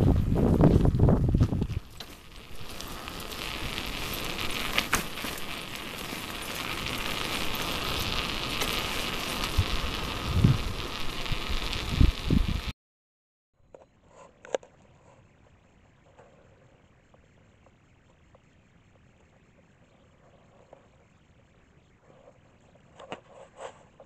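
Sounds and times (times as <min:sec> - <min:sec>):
low rush on microphone: 0:00.0 - 0:12.7.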